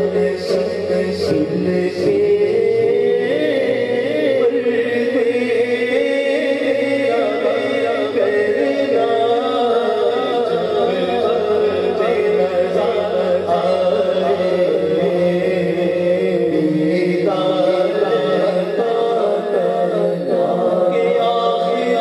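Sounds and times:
low vocal drone: 0.0s - 22.0s
man singing devotional verse: 0.0s - 22.0s.

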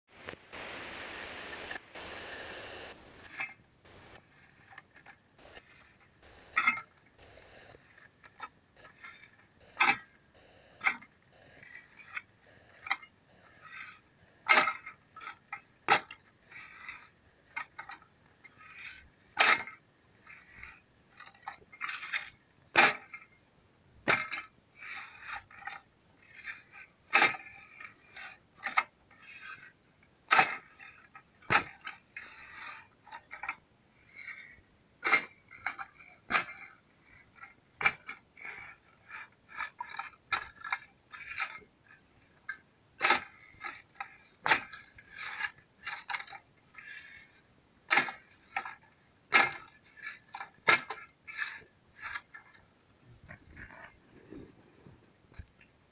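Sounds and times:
soil clods crunching: 0.2s - 16.2s
hand plough tines knocking: 3.1s - 19.8s, 20.4s - 23.2s, 24.0s - 29.7s, 30.3s - 54.5s.

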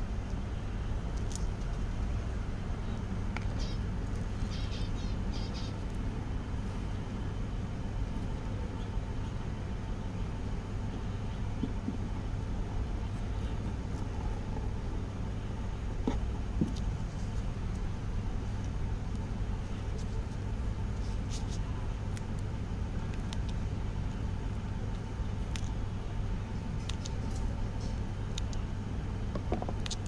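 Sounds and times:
steady low rumble: 0.0s - 30.0s.

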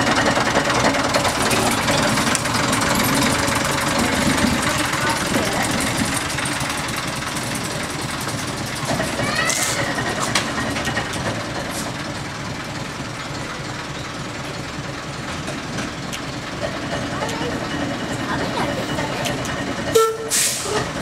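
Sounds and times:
diesel locomotive engine running: 0.0s - 21.0s.

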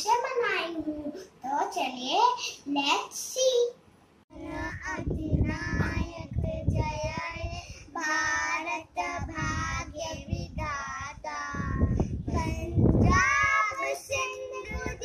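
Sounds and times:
girls singing: 12.4s - 15.0s.

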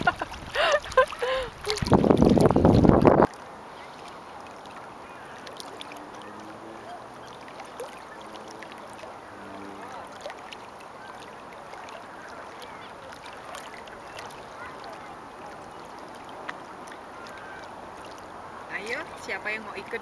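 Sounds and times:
waves lapping against rocks: 0.0s - 20.0s.

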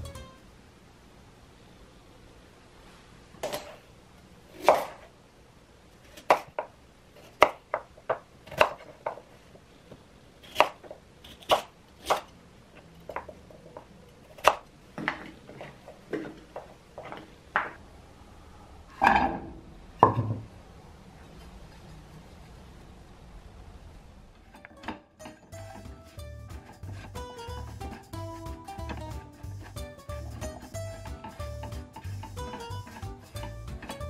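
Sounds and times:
knife chopping on wooden board: 6.2s - 6.7s, 7.3s - 9.2s.

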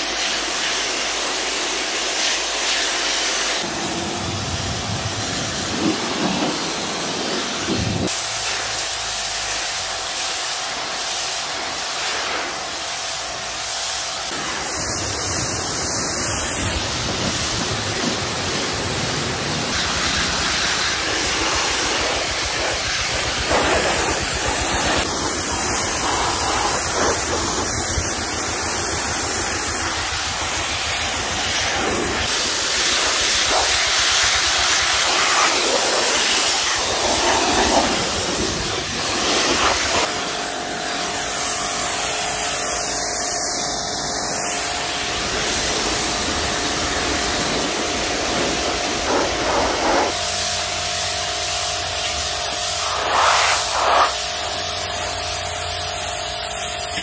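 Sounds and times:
pressure washer spray hissing: 0.0s - 57.0s
steady hum: 14.4s - 42.1s.

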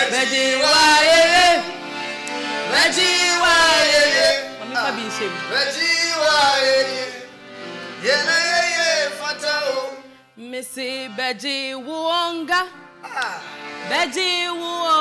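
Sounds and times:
piano accordion chords: 0.0s - 15.0s
person singing: 8.0s - 15.0s.

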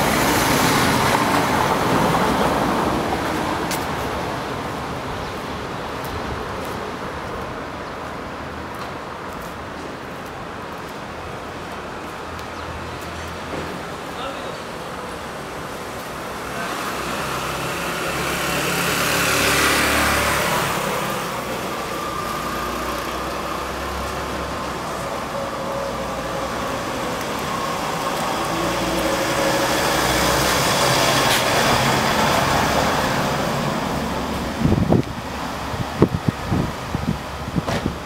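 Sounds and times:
van passing: 13.4s - 38.0s
motorcycle passing: 16.7s - 23.7s.

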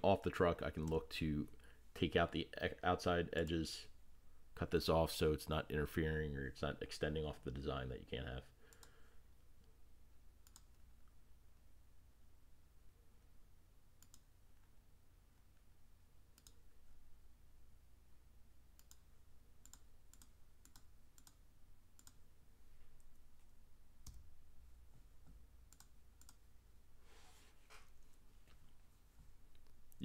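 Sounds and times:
low steady hum: 0.0s - 30.0s
computer mouse clicks: 8.7s - 9.0s, 10.4s - 10.8s, 14.0s - 14.3s, 16.3s - 16.6s, 18.8s - 21.4s, 22.0s - 22.2s, 25.7s - 26.4s.

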